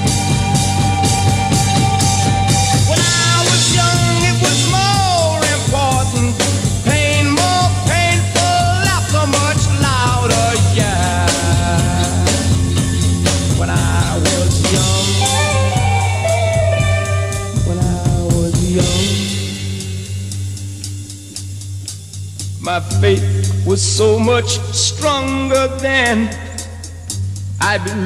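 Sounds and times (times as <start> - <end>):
electric guitar bending notes: 0.0 - 21.2
psychedelic rock music: 0.0 - 28.0.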